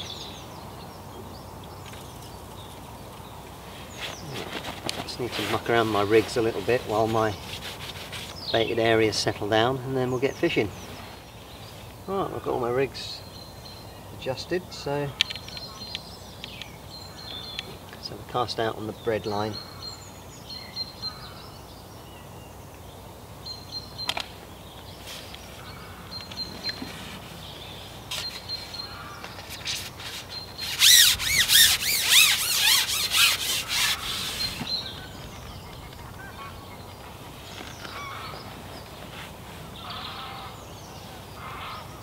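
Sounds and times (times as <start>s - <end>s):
loud rapid bird calls: 0.0s - 42.0s
faint bird calls: 19.2s - 42.0s.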